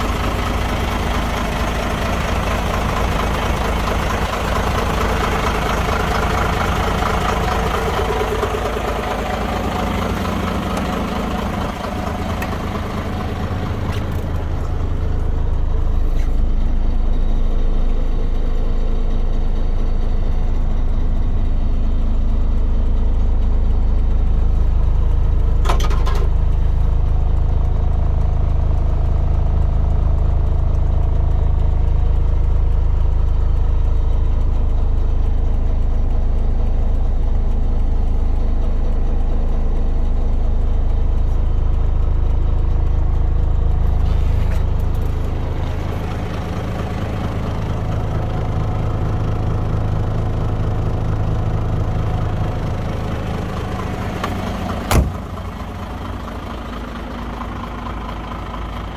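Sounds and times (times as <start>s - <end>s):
truck diesel engine idling: 0.0s - 58.9s
brief knock: 54.9s - 55.2s.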